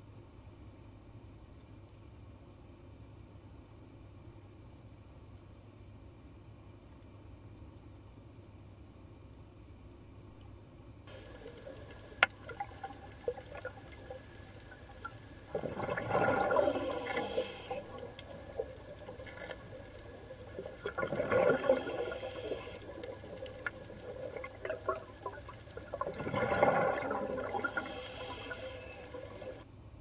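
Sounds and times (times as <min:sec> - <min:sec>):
faint underwater clicks: 0:10.4 - 0:29.6
underwater bubbles rushing up: 0:11.1 - 0:29.6.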